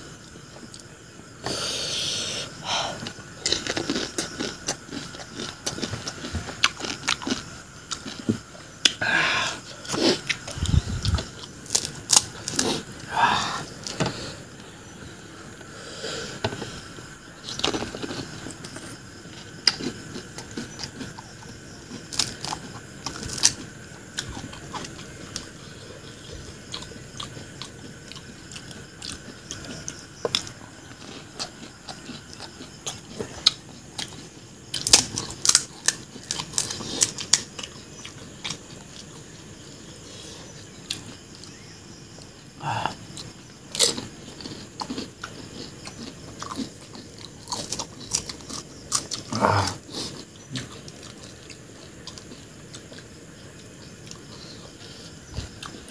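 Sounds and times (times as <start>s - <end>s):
crunchy food being chewed: 2.4s - 55.9s.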